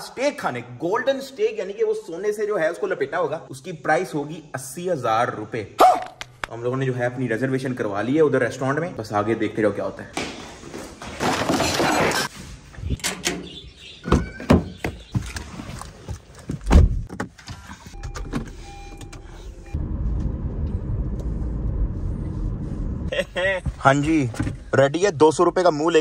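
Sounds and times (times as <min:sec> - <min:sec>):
car driving rumble: 0:14.2 - 0:25.0.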